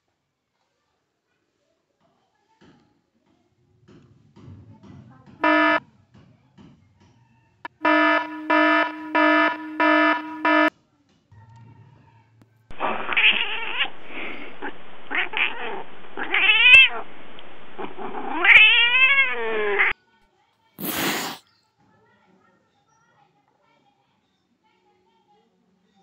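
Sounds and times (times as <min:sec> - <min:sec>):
short electronic beeps: 0:05.4 - 0:05.8, 0:07.8 - 0:10.7
kitten growling and yowling: 0:12.8 - 0:17.0, 0:17.8 - 0:19.9
loud cat meows: 0:12.8 - 0:17.0, 0:17.8 - 0:19.9.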